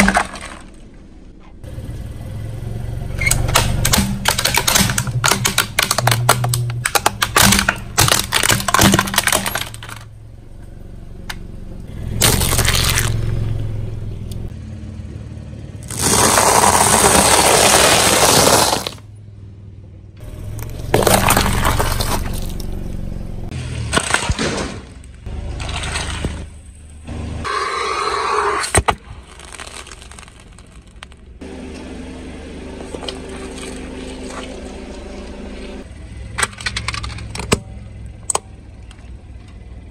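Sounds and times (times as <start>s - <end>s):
tyre crushing plastic toy: 3.3s - 10.1s, 12.2s - 13.2s, 15.9s - 19.0s, 20.9s - 22.6s, 28.7s - 31.3s
tyre crunching noodles: 12.2s - 13.3s, 15.9s - 19.0s, 29.0s - 31.2s.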